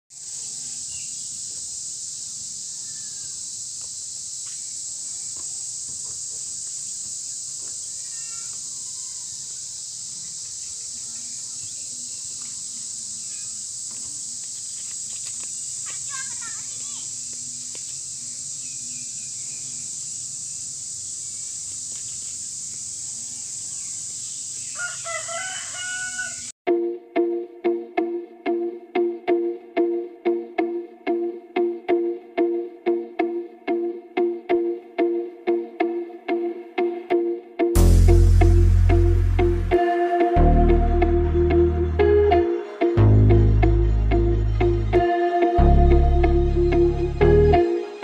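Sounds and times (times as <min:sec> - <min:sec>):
high-pitched insect chorus: 0:00.1 - 0:26.6
faint bird chirps: 0:00.4 - 0:01.4, 0:07.2 - 0:14.9.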